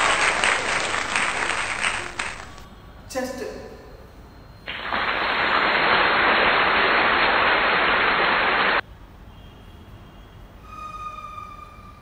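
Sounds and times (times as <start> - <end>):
static hiss: 4.7 - 8.8.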